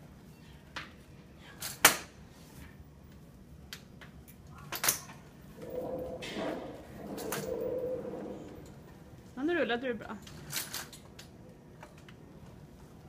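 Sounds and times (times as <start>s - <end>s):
low voice-like hum: 5.5s - 9.0s.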